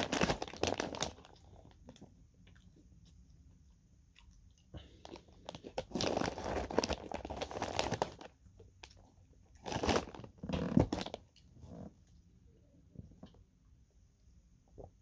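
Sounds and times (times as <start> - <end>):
plastic snack bag crinkling: 0.0 - 2.1, 4.8 - 11.4.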